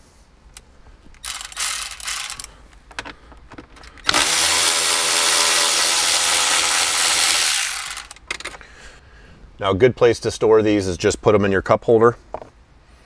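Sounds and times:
electric ratchet motor whine: 1.2 - 2.5, 4.1 - 8.2.

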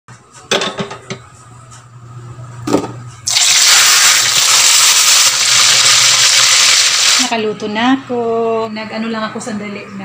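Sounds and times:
fish sizzling in oil: 3.3 - 7.3.

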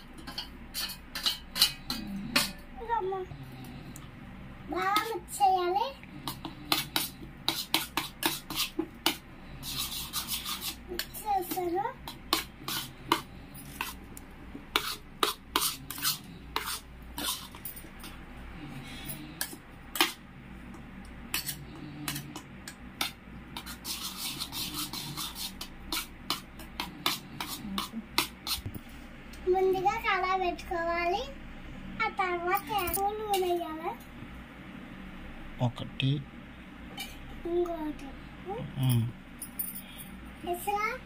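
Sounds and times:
metal spoon scraping steel bowl: 0.2 - 2.6, 6.2 - 11.6, 12.3 - 14.0, 14.7 - 17.7, 23.0 - 28.7.

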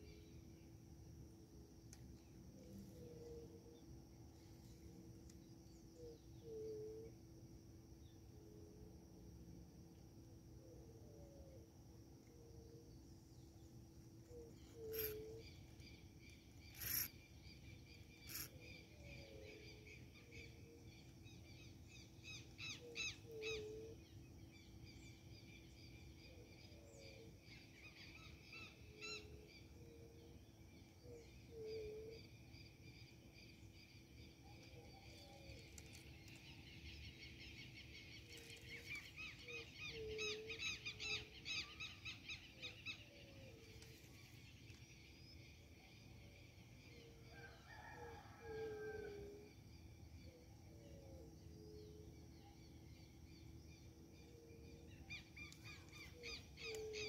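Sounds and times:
rapid high bird chirping: 16.7 - 17.1.

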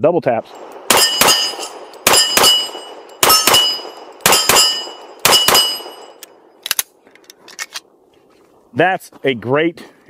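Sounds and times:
metallic ring: 0.5 - 6.3
pistol shots: 0.6 - 6.2.

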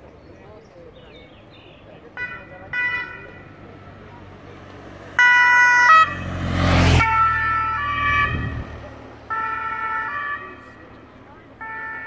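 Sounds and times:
vehicle passing by: 3.2 - 11.6
two-tone siren: 5.2 - 10.7, 11.6 - 12.0.

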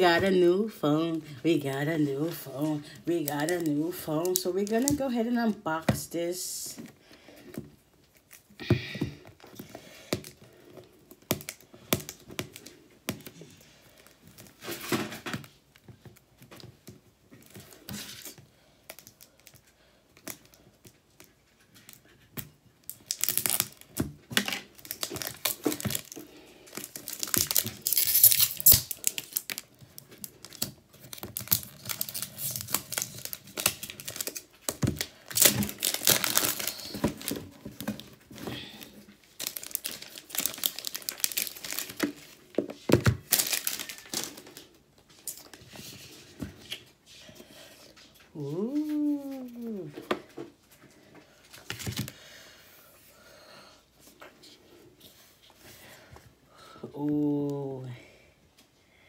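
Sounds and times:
paper seal tearing: 27.8 - 29.1.

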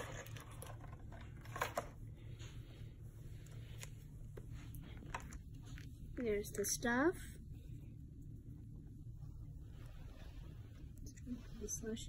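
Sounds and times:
plastic packaging crinkling: 0.0 - 2.0.

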